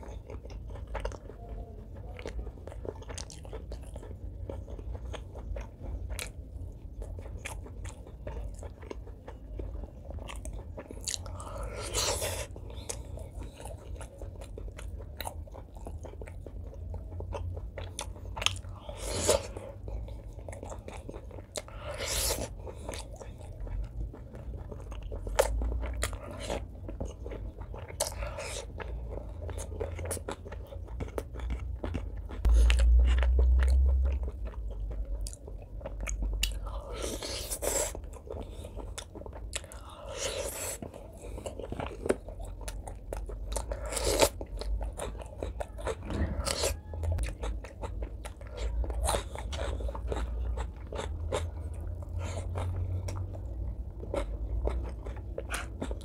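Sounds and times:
wet chewing and mouth noises: 0.0 - 56.0
loud low rumble: 32.5 - 35.2, 45.7 - 47.4.

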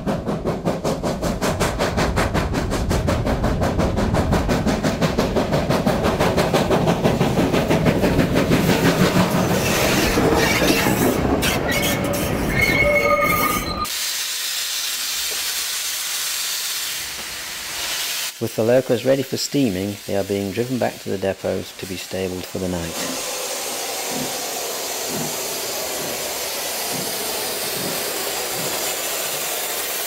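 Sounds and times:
steam hissing: 0.0 - 12.7, 13.4 - 30.0
steam locomotive exhaust beating: 0.0 - 30.0
high wheel squeal: 9.4 - 13.9.

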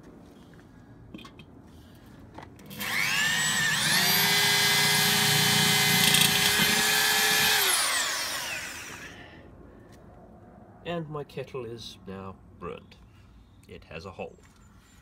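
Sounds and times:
electric drill boring through steel: 2.7 - 9.3.

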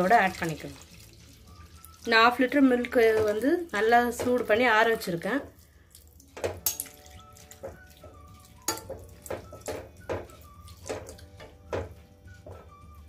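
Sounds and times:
soft background music: 0.0 - 13.0
milk pouring into a pan: 0.1 - 2.1
spoon knocking against pan: 7.6 - 12.8.

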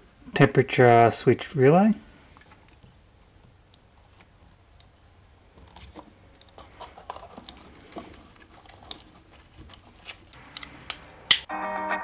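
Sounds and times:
small parts clicking and rustling: 5.6 - 11.5.

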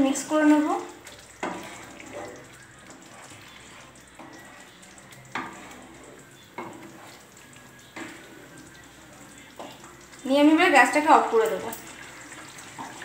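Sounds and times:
faint gravy sizzling: 0.0 - 13.0
wooden spatula stirring gravy: 0.8 - 10.2.

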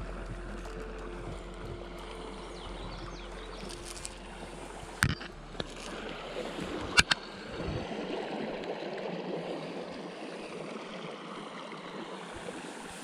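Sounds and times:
creek water running: 0.0 - 13.0.

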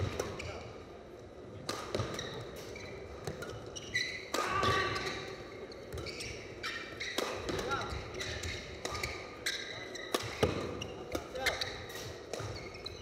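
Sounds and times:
shoes squeaking on court: 0.0 - 0.8, 1.9 - 13.0.

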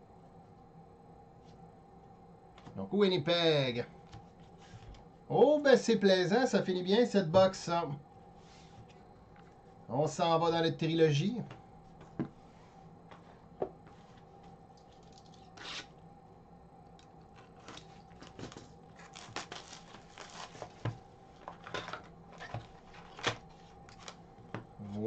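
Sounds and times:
faint steady hum: 0.0 - 25.0
paper rustling and tapping: 17.5 - 24.7
cardboard and wrapping ripping: 17.6 - 20.8.

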